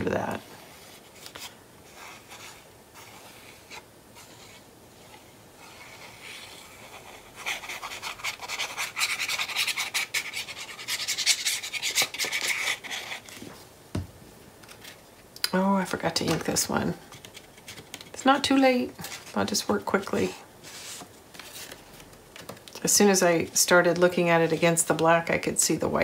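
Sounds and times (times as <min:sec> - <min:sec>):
paper rustling: 0:20.6 - 0:22.8.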